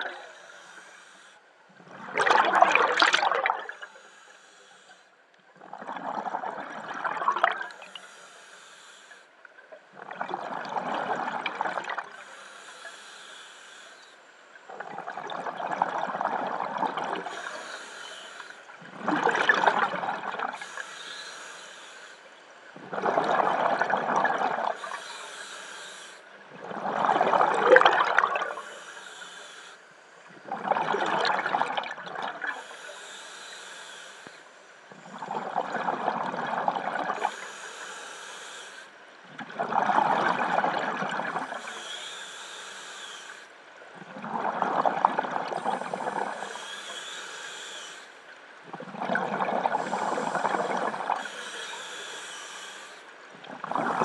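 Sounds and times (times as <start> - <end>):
regulator inhale hiss: 0.0 - 1.5, 3.6 - 5.2, 7.7 - 9.3, 12.1 - 14.5, 17.2 - 18.8, 20.6 - 22.5, 24.7 - 26.4, 28.4 - 30.3, 32.4 - 35.2, 37.2 - 39.0, 41.3 - 43.6, 45.5 - 48.2, 49.7 - 53.2
exhaust bubbles bursting: 2.0 - 3.7, 26.6 - 28.5.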